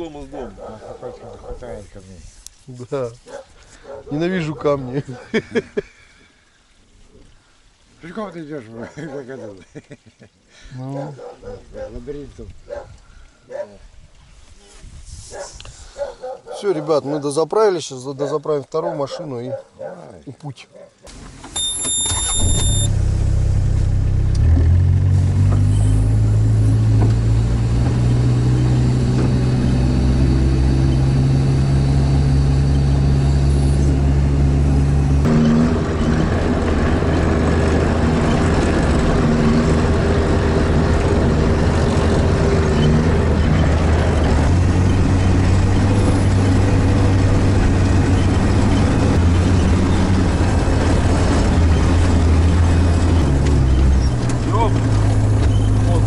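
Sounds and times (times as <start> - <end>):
diesel engine droning: 21.1 - 56.0.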